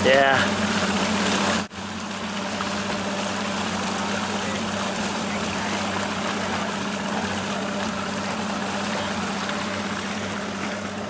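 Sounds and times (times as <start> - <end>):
outboard motor running: 0.0 - 11.0
rushing water and wind: 0.0 - 11.0.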